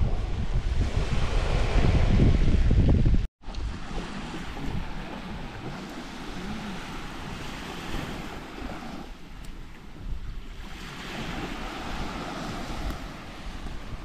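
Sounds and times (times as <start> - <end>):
wind buffeting microphone: 0.0 - 14.0
sea waves washing onto beach: 3.4 - 14.0.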